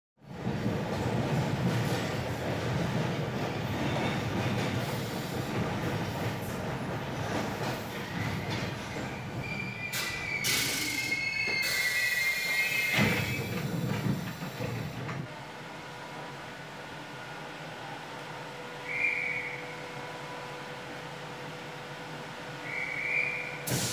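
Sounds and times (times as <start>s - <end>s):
subway train rumble: 0.2s - 23.9s
train clunk: 0.3s - 15.4s, 22.7s - 23.9s
train wheels squealing: 7.7s - 14.7s, 18.8s - 20.0s, 22.6s - 23.8s.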